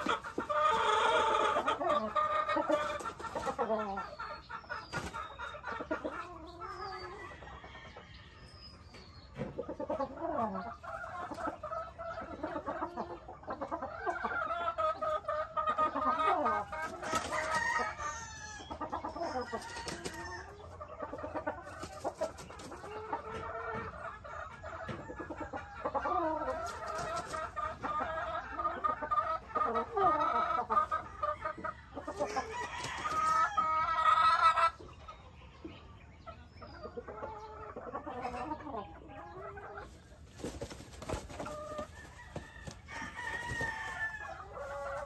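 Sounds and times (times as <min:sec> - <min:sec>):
chickens clucking and calling: 0:00.0 - 0:45.0
rooster crowing: 0:41.9 - 0:44.4.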